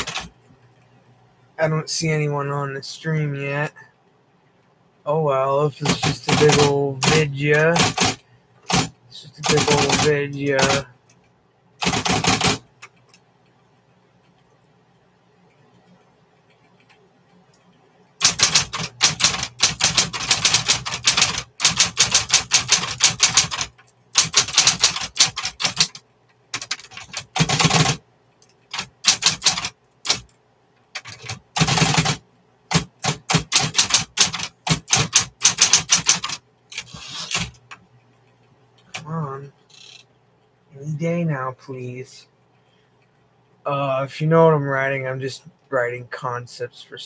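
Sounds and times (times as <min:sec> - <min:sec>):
electric typewriter keystrokes: 0:00.0 - 0:00.3, 0:05.8 - 0:10.8, 0:11.8 - 0:12.6, 0:18.2 - 0:28.0, 0:28.7 - 0:30.3, 0:31.0 - 0:37.6
faint hum: 0:00.0 - 0:47.0.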